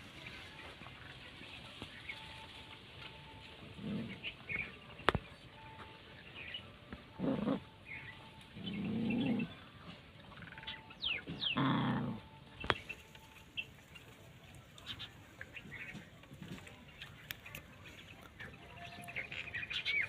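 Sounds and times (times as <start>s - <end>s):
bird chirps: 1.8s - 20.0s
puppies growling: 3.6s - 4.8s, 7.1s - 12.6s.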